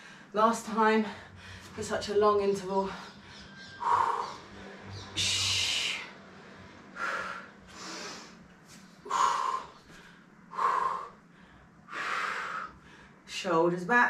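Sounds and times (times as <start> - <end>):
woman breathing hard: 0.0 - 0.3, 1.1 - 1.8, 3.0 - 6.2, 6.9 - 13.3.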